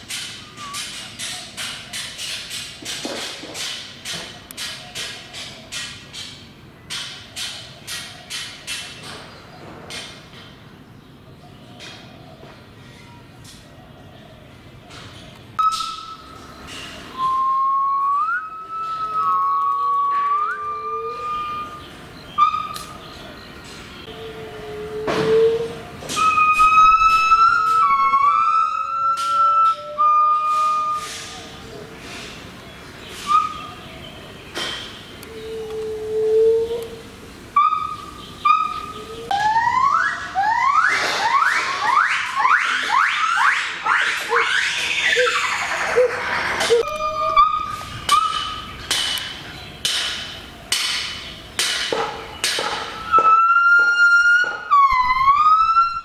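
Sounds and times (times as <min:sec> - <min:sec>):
gibbons whistling songs: 0:00.1 - 0:02.8, 0:14.8 - 0:50.1, 0:52.4 - 0:56.0
short harsh calls: 0:40.8 - 0:48.7.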